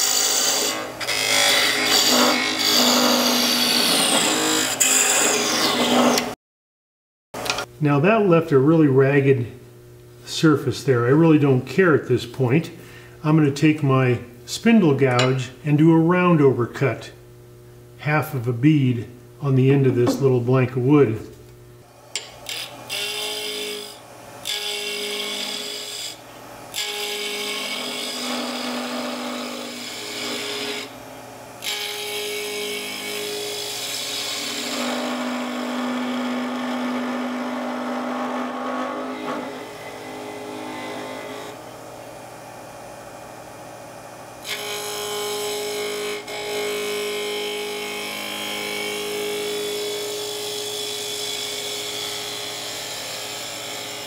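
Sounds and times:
gouge cutting wood on lathe: 0:00.0 - 0:06.4, 0:22.2 - 0:31.0, 0:31.6 - 0:41.6, 0:44.4 - 0:54.0
lathe humming: 0:22.0 - 0:32.2, 0:33.8 - 0:54.0.

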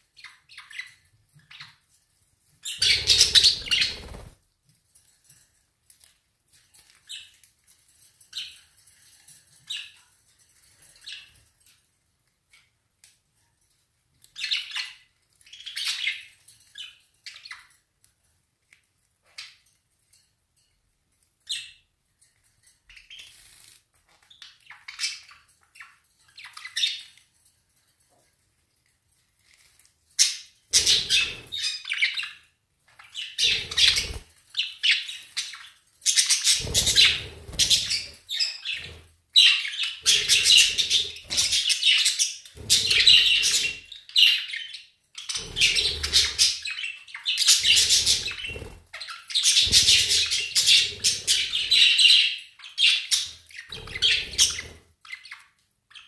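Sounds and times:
budgerigars chattering and chirping: 0:02.6 - 0:04.3, 0:30.2 - 0:32.4, 0:33.0 - 0:56.0.

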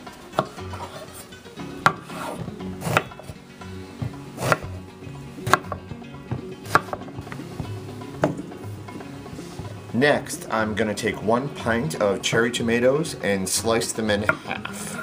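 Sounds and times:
knife chopping on wooden board: 0:01.8 - 0:03.4, 0:04.0 - 0:04.8, 0:05.4 - 0:07.4.

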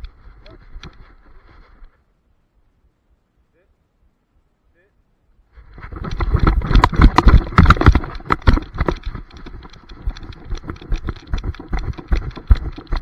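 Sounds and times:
camera mount knocking and rattling: 0:06.0 - 0:13.0.

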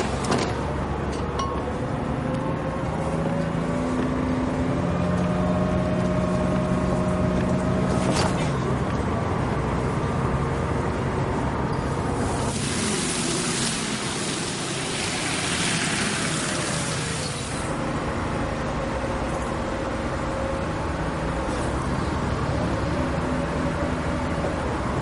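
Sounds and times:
bus engine rumbling: 0:00.0 - 0:25.0
water spraying hiss: 0:12.2 - 0:17.7.

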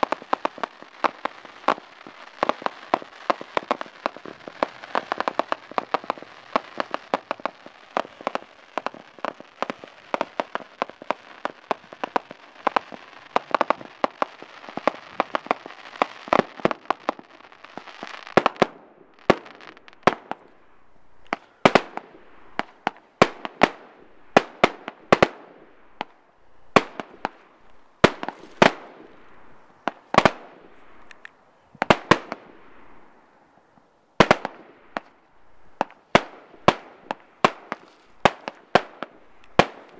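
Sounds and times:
fireworks hiss: 0:00.0 - 0:33.2, 0:34.2 - 0:39.9
fireworks bangs: 0:00.0 - 0:39.9.

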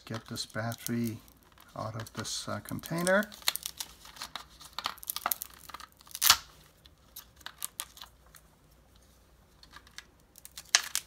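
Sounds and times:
blister pack tearing: 0:00.0 - 0:08.4, 0:09.8 - 0:11.0
packaging crackle: 0:00.0 - 0:08.5, 0:09.6 - 0:11.0
light clicks and crinkles: 0:00.0 - 0:11.0.

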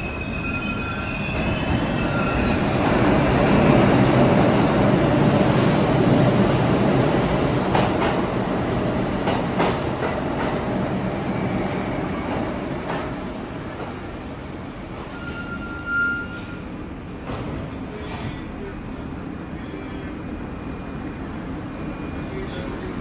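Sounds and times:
high wheel squeal: 0:00.0 - 0:02.7, 0:13.0 - 0:16.7
subway wheels clicking over rail joints: 0:07.6 - 0:08.4, 0:09.0 - 0:10.8, 0:12.2 - 0:14.1.

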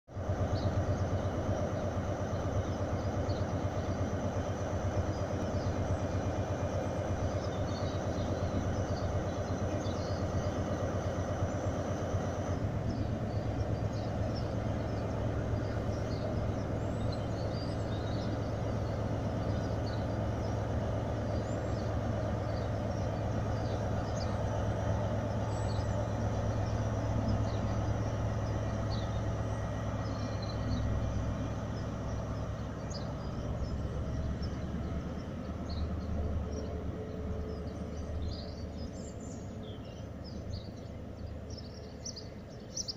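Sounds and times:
train diesel engines running: 0:00.1 - 0:42.9
small birds chirping: 0:00.5 - 0:42.9.

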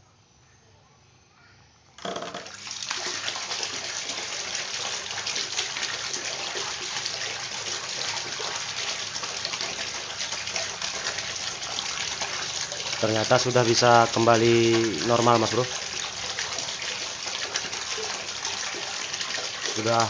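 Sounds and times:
water jet splashing into basin: 0:02.0 - 0:20.0.

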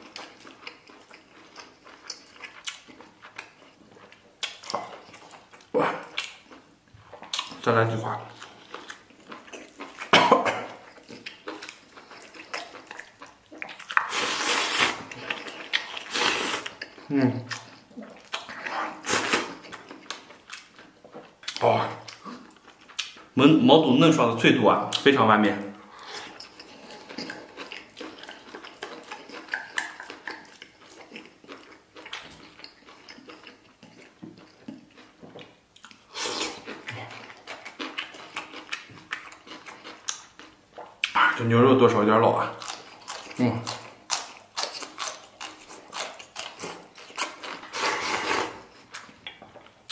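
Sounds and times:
wet chewing clicks: 0:00.0 - 0:07.7, 0:26.3 - 0:41.4, 0:42.5 - 0:49.9
loud slurp: 0:14.0 - 0:15.1, 0:47.7 - 0:48.6.

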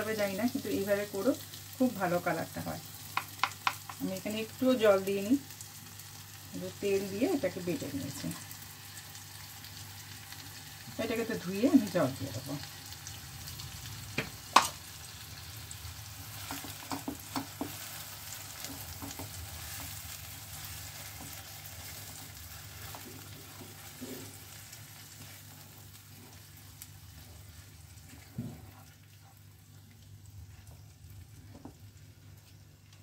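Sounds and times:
food sizzling in a pan: 0:00.0 - 0:33.0
spatula stirring and scraping: 0:16.1 - 0:32.7.

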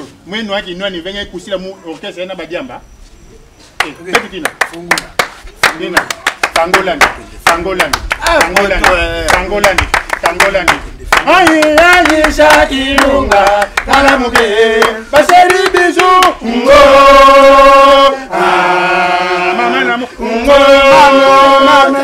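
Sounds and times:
hand claps: 0:03.8 - 0:16.4
group chanting and singing: 0:05.5 - 0:22.0.

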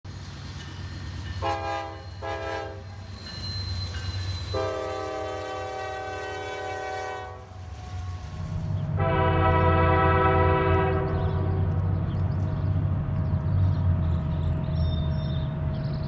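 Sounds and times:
train horn blasts: 0:01.4 - 0:03.1, 0:04.5 - 0:11.8.

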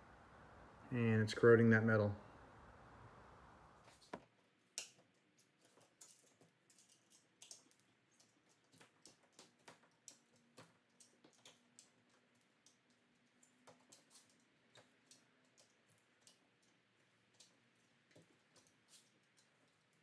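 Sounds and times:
faint steady hum: 0:00.0 - 0:09.2.

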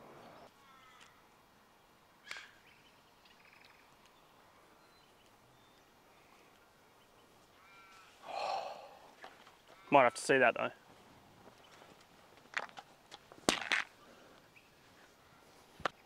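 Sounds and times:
bird calling: 0:02.2 - 0:10.3.

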